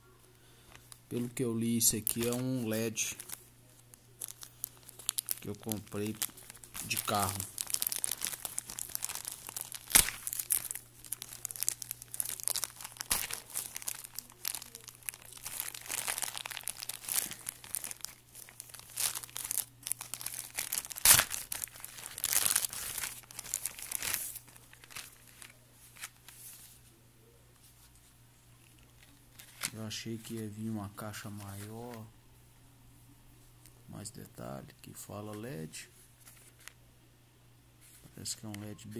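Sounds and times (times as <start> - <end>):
plastic mailer crinkling and tearing: 0.7 - 26.7, 28.6 - 32.1.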